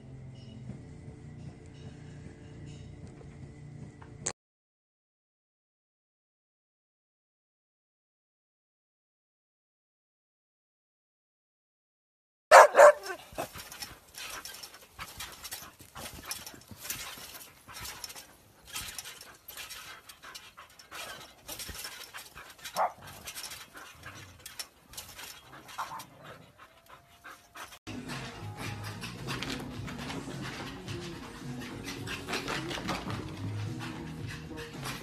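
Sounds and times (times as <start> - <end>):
dog barking: 12.5 - 13.5, 22.6 - 23.2
dog panting: 12.5 - 35.0.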